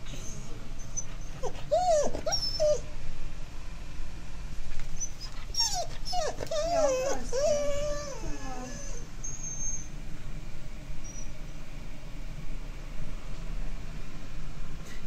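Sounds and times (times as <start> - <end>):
dog whining and whimpering: 0.1 - 3.0, 5.0 - 10.0, 11.0 - 11.4.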